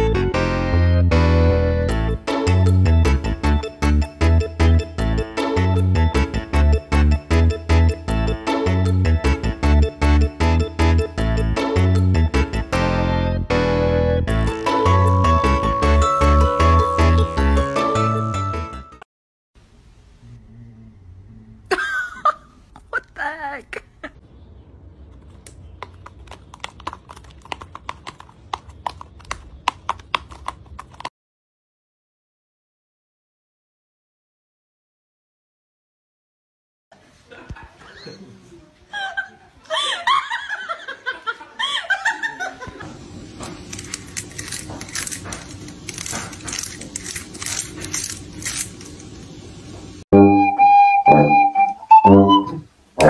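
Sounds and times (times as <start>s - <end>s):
person laughing: 21.7s - 24.2s, 38.9s - 42.9s
cat gnawing wicker basket: 25.2s - 31.1s, 43.6s - 48.8s.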